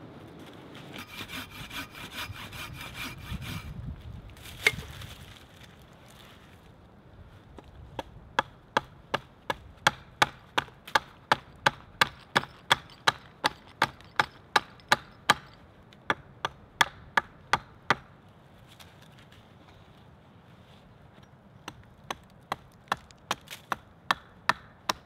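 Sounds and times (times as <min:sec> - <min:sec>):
hatchet chopping wood: 0:01.0 - 0:03.6, 0:08.0 - 0:18.1, 0:21.6 - 0:25.0.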